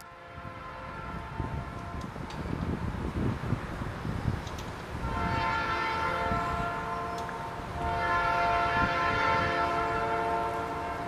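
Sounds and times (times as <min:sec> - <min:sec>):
locomotive air horn blasts: 0:00.0 - 0:02.3, 0:05.0 - 0:11.0.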